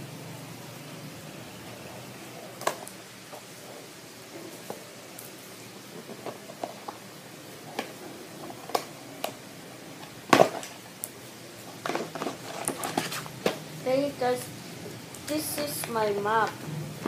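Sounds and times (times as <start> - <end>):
cardboard rustling: 11.6 - 14.0.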